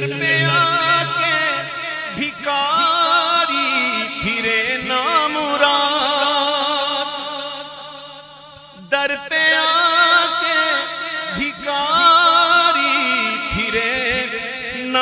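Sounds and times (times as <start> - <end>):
steady low drone: 0.0 - 2.9
man singing unaccompanied: 0.0 - 15.0.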